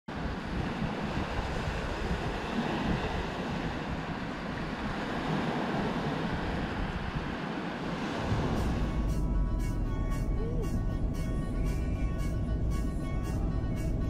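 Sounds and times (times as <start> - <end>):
waves washing up a sandy beach: 0.1 - 9.2
wind buffeting microphone: 0.1 - 9.6.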